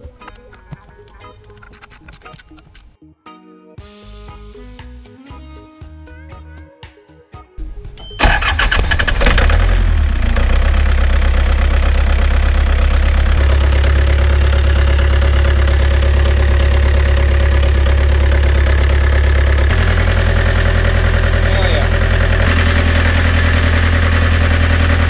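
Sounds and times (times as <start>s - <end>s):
diesel engine starting and running: 7.6s - 25.0s.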